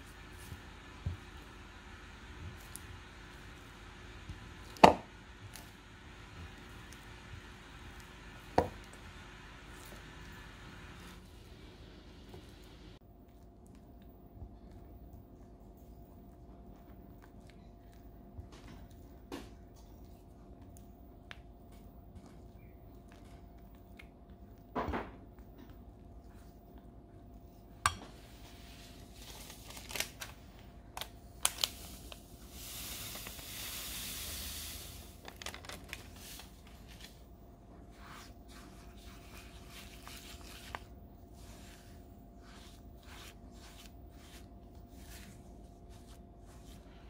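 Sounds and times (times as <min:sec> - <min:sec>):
sweetener pouring hiss: 0:31.7 - 0:35.2.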